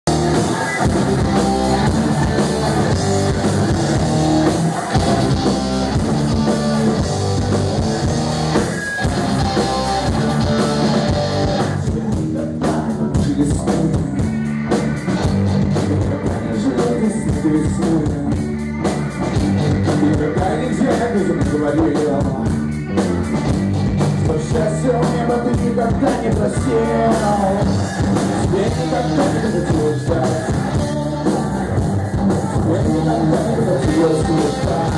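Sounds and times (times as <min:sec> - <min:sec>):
bass guitar: 0:00.0 - 0:34.9
drum kit: 0:00.0 - 0:34.9
electric guitar: 0:00.0 - 0:34.9
man singing into a microphone: 0:11.7 - 0:14.4, 0:15.6 - 0:18.5, 0:19.6 - 0:22.6, 0:24.2 - 0:34.9.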